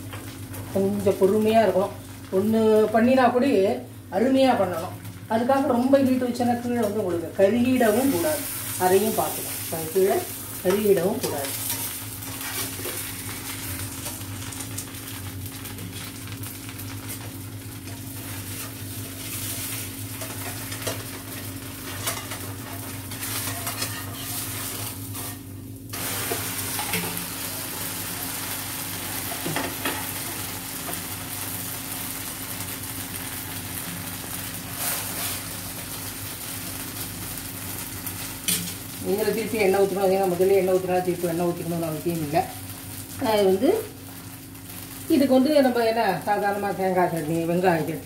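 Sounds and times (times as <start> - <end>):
batter sizzling in oil: 0.0 - 48.0
spatula scraping and tapping: 21.8 - 25.4.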